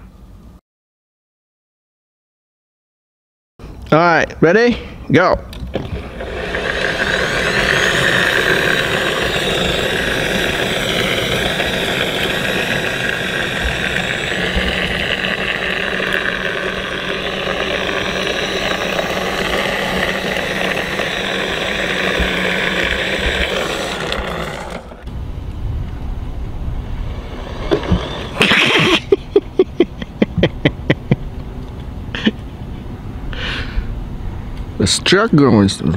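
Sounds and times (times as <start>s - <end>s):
wheels rolling on asphalt: 5.5s - 30.0s
electric motor and gears whining: 5.5s - 30.4s.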